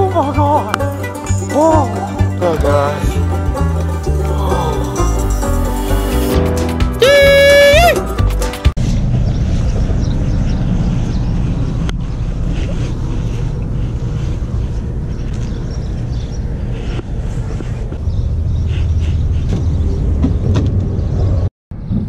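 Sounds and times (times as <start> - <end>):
vehicle engine idling: 8.9 - 20.0.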